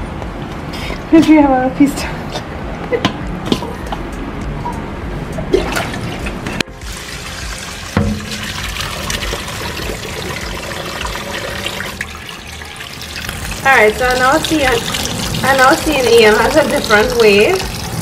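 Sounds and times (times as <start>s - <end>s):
water running into colander: 6.7s - 18.0s
tap water splashing into steel bowl: 7.9s - 12.0s.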